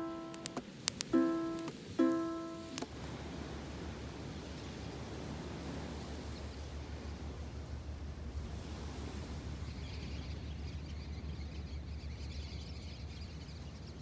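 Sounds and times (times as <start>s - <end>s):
small waves breaking: 0.0s - 11.8s
wind rumble: 2.6s - 12.2s
flock of birds chirping: 9.4s - 14.0s.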